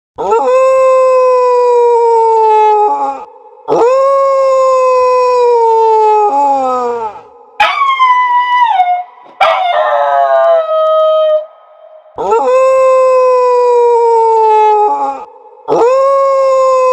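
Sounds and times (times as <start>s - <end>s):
husky howling: 7.6s - 12.6s.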